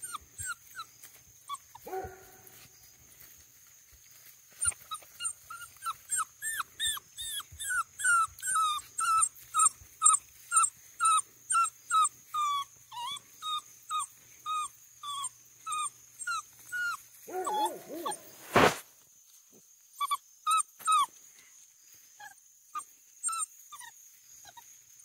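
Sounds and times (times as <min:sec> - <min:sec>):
puppy whining: 0:00.0 - 0:02.1, 0:04.6 - 0:18.4, 0:20.0 - 0:21.1, 0:22.2 - 0:24.6.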